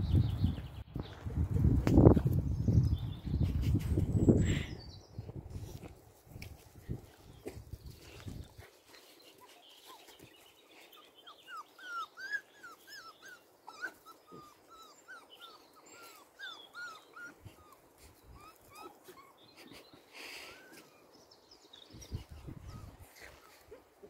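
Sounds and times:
puppies whimpering: 0:09.3 - 0:21.1, 0:22.0 - 0:23.8.

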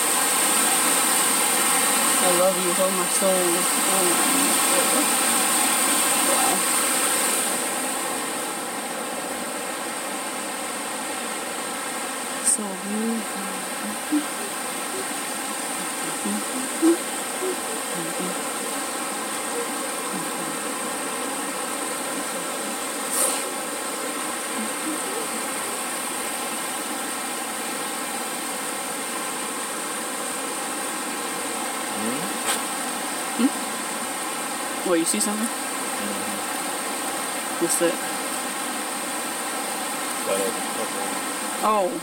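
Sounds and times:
creek water flowing over rocks: 0:00.0 - 0:12.5.

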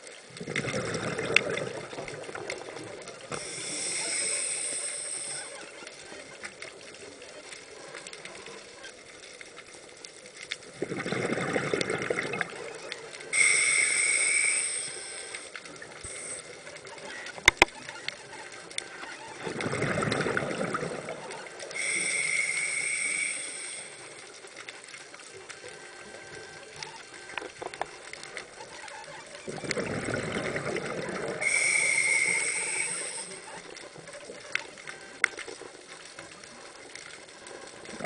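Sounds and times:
diver exhaling bubbles: 0:00.4 - 0:02.4, 0:10.8 - 0:12.5, 0:19.5 - 0:21.1, 0:29.5 - 0:31.8
regulator inhalation hiss: 0:03.3 - 0:05.6, 0:13.4 - 0:16.6, 0:21.7 - 0:24.3, 0:31.4 - 0:33.5.

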